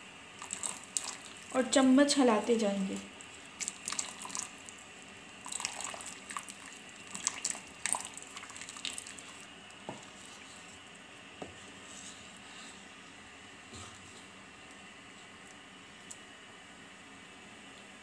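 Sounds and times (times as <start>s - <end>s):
liquid sloshing: 0.4s - 1.6s, 3.1s - 4.8s, 5.4s - 10.7s.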